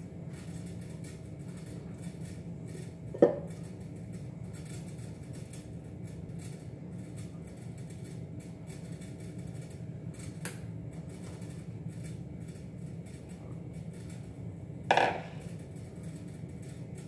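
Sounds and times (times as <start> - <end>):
steady low hum: 0.0 - 17.0
mixing bowl knocked with ring: 14.9 - 15.4.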